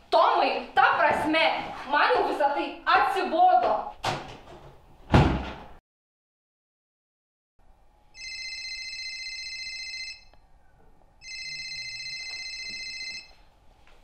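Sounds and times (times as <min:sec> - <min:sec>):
phone ringing bell ringtone: 0:08.2 - 0:10.3, 0:11.2 - 0:13.4.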